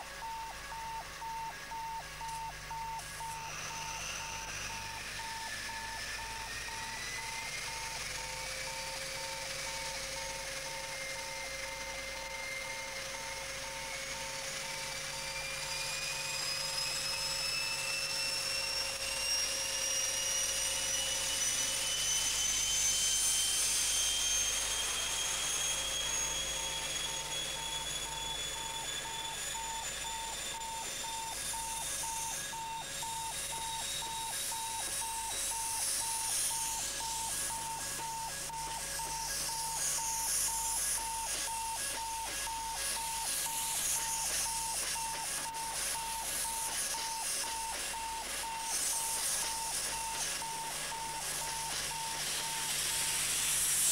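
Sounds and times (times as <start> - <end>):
train engine whine: 0.0 - 53.9
regular beeps: 0.2 - 11.4.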